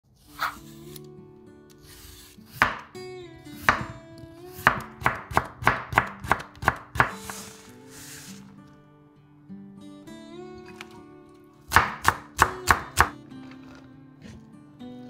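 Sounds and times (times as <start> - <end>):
light background music: 0.1 - 15.0
knife chopping on wooden board: 2.6 - 2.9, 3.6 - 4.0, 4.6 - 7.5, 11.7 - 13.2.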